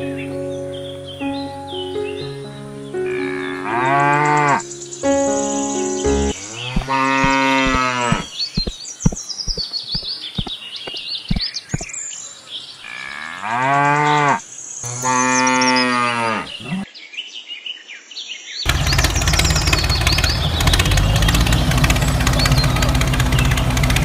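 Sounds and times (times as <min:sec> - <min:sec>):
birds chirping: 0:00.0 - 0:17.2, 0:18.6 - 0:24.0
cow mooing: 0:03.1 - 0:04.6, 0:06.4 - 0:08.3, 0:13.0 - 0:16.8
quick knocks: 0:06.7 - 0:11.9
engine running: 0:18.7 - 0:24.0.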